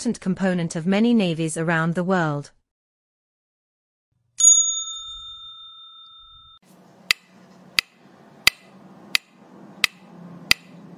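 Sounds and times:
bell ding: 4.4 - 6.6
sharp clicks: 7.1 - 10.7.

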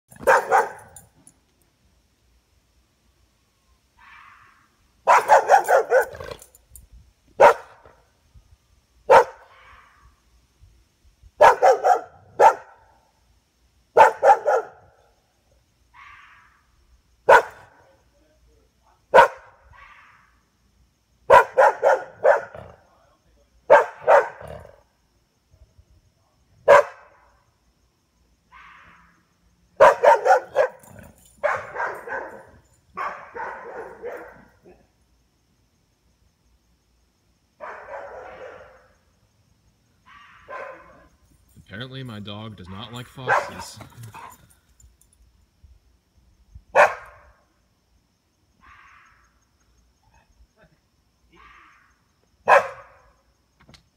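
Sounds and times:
dog barking: 0.2 - 1.0, 5.0 - 6.4, 7.4 - 8.0, 9.1 - 9.9, 11.4 - 12.9, 14.0 - 14.9, 17.3 - 17.8, 19.1 - 20.3, 21.3 - 22.8, 23.7 - 24.8, 26.6 - 27.2, 29.8 - 34.8, 37.6 - 39.0, 40.1 - 41.1, 43.3 - 43.6, 46.8 - 47.3, 52.4 - 53.1.

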